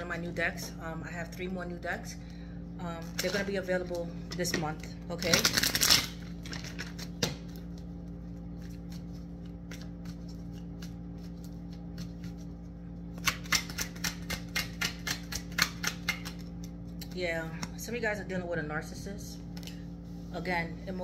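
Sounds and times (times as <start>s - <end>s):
steady low hum: 0.0s - 21.0s
cards shuffling: 5.2s - 17.2s.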